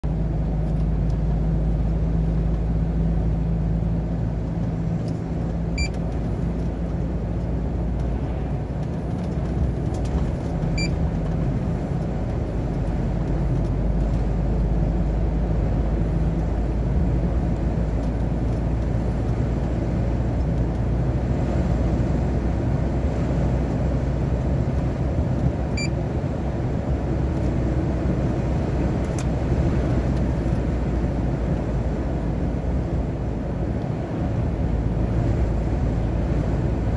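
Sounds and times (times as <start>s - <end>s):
diesel truck engine running: 0.0s - 36.9s
road and tyre noise: 0.0s - 36.9s
short electronic beep: 10.8s - 11.0s.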